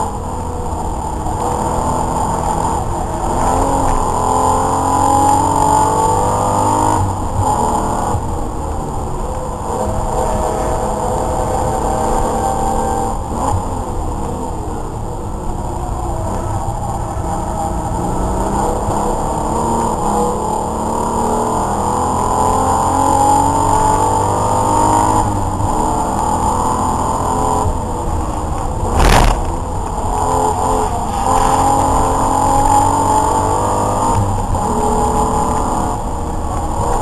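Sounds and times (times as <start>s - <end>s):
race car engine accelerating: 0.0s - 37.0s
loud thump: 28.8s - 29.7s.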